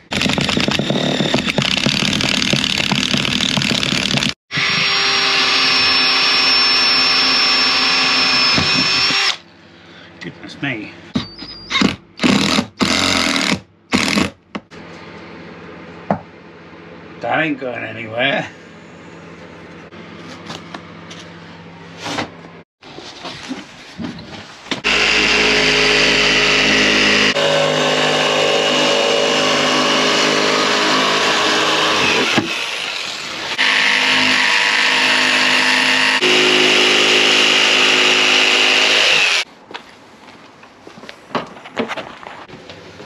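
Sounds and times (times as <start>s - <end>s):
jigsaw cutting wood: 0.0s - 9.4s, 12.2s - 14.4s, 24.8s - 39.4s.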